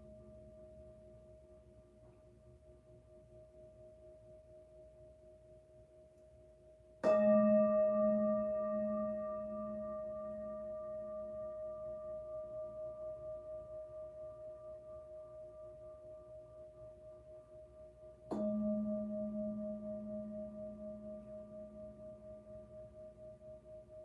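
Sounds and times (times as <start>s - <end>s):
felt mallet striking bowl: 7.0s - 11.2s, 18.2s - 22.8s
singing bowl ringing: 7.0s - 24.0s.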